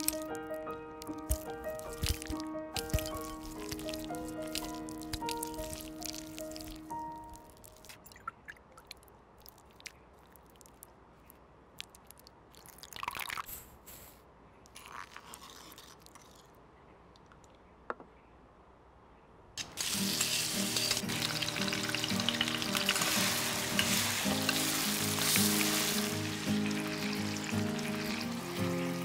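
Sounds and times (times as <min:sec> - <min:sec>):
background music: 0:00.0 - 0:07.9, 0:19.8 - 0:29.0
spooning and pouring sauces: 0:00.0 - 0:10.8, 0:14.7 - 0:16.5, 0:19.6 - 0:29.0.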